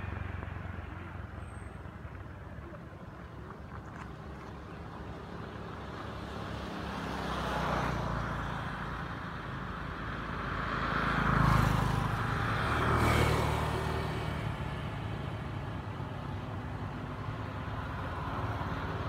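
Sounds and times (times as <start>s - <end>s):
road traffic passing: 0.0s - 19.0s.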